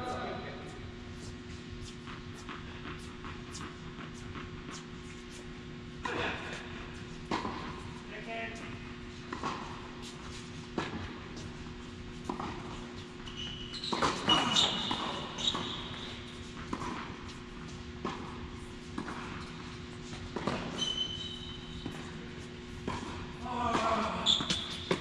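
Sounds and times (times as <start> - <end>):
tennis ball bouncing: 9.3 - 21.0, 21.8 - 25.0
sneaker squeaks on court: 13.2 - 16.5, 20.5 - 22.2, 23.8 - 25.0.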